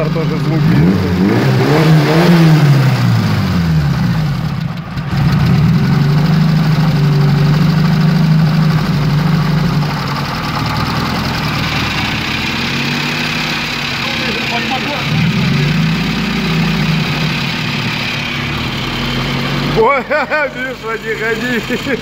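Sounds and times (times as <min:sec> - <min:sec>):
car engine idling: 0:00.0 - 0:22.0
engine knock: 0:03.2 - 0:19.2.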